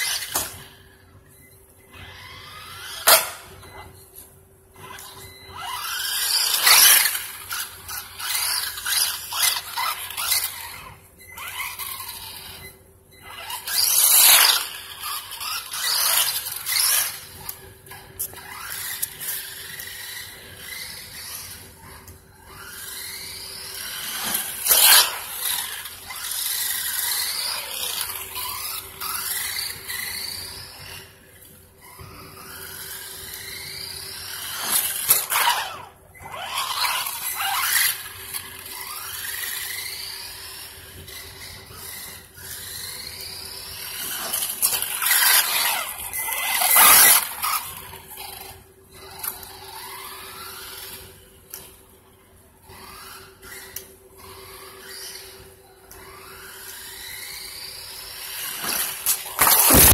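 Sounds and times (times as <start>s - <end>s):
rc truck motor whining: 0.0s - 59.9s
harsh bursts: 58.5s - 59.9s.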